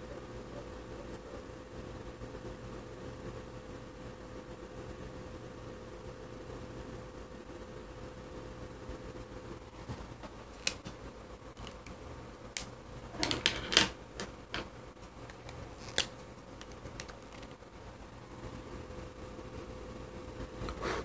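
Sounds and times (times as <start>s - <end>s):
faint steady hum: 0.0s - 21.0s
pens clicking and tapping: 11.6s - 12.0s, 12.6s - 17.6s.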